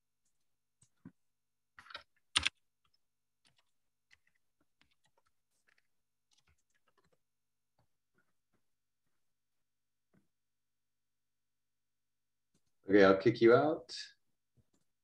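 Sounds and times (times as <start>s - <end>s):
keyboard key clicks: 2.3s - 2.5s.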